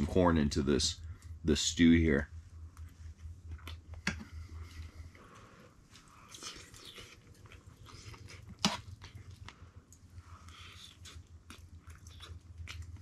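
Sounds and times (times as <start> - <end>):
quiet chewing: 2.6 - 13.0.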